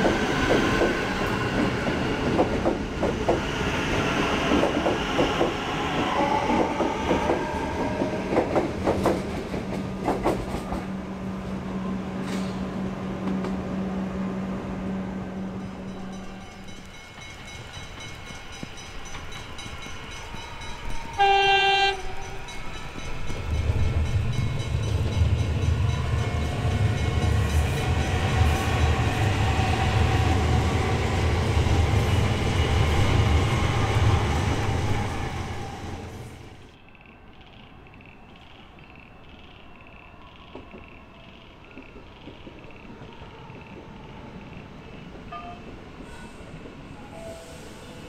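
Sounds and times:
train wheels rumbling: 0:00.0 - 0:48.0
train horn: 0:20.6 - 0:22.6.

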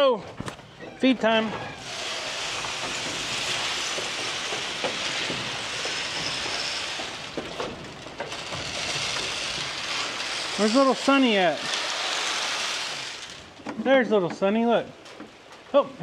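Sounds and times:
rain hissing on surfaces: 0:01.8 - 0:13.6.

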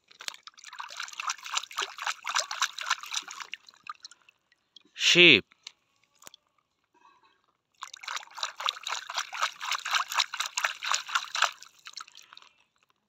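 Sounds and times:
water splashing in a tub: 0:00.0 - 0:04.4, 0:07.8 - 0:12.5.

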